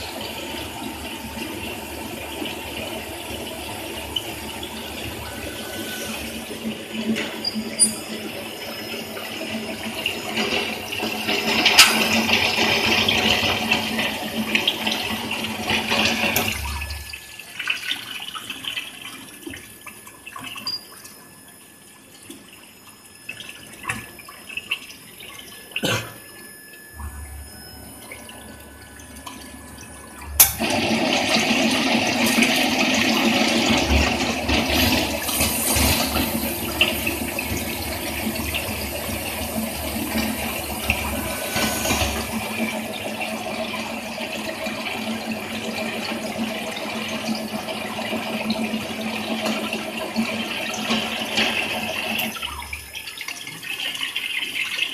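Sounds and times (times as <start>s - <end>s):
machine hum: 0.0s - 18.8s, 21.1s - 53.0s.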